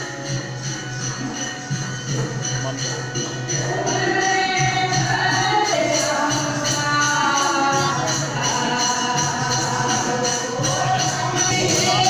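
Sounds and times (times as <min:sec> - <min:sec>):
jingling percussion beat: 0:00.0 - 0:12.0
person singing devotional song: 0:03.4 - 0:12.0.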